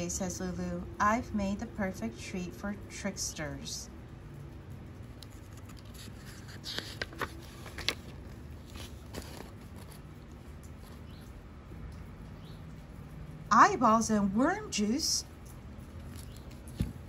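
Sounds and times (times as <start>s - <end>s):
low room hum: 0.0s - 17.0s
paper rustling: 5.2s - 11.2s, 15.9s - 17.0s.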